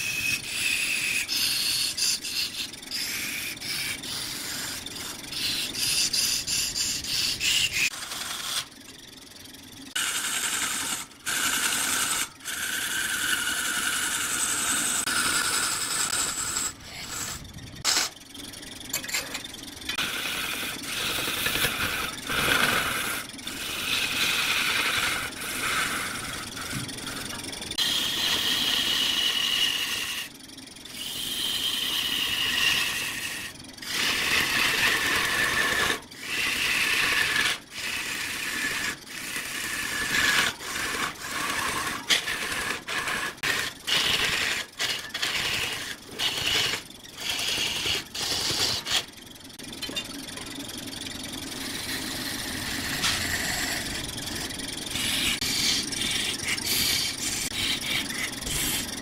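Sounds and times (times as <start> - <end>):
wood lathe cutting with high whine: 0.0 - 18.5, 19.6 - 59.0
quiet steady scraping: 31.9 - 49.1.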